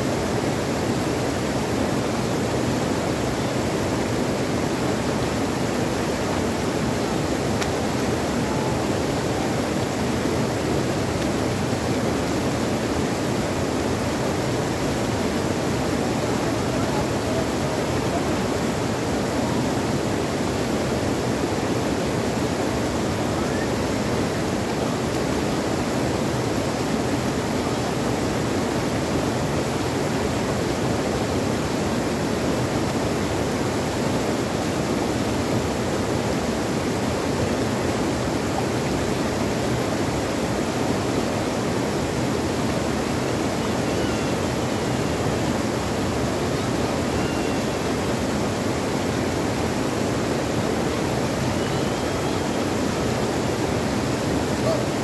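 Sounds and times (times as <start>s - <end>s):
water rushing over rocks: 0.0s - 55.0s.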